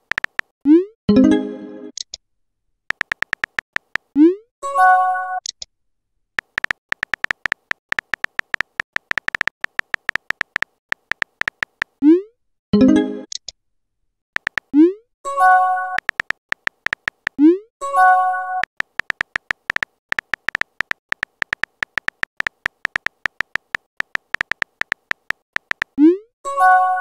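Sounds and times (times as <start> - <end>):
electronic key-tap ticks: 0.0 - 0.5, 2.9 - 4.1, 6.4 - 12.0, 14.4 - 14.7, 16.0 - 17.4, 18.6 - 26.0.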